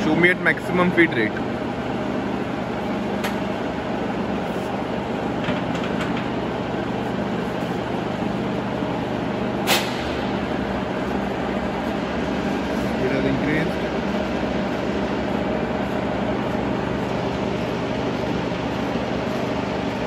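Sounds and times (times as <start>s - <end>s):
milling machine whir and hum: 0.0s - 20.0s
sharp click: 9.6s - 10.2s.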